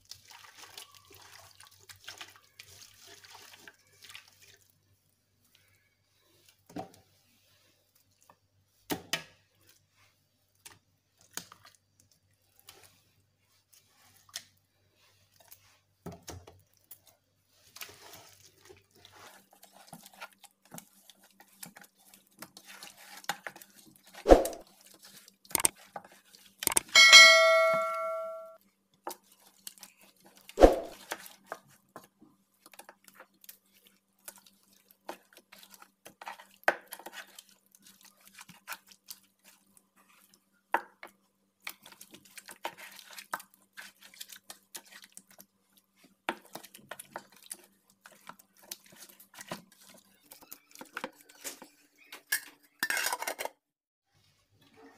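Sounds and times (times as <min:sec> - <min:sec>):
wet squelches of marinade: 0:00.0 - 0:26.6, 0:28.9 - 0:52.6
metal pot ringing: 0:26.8 - 0:28.6.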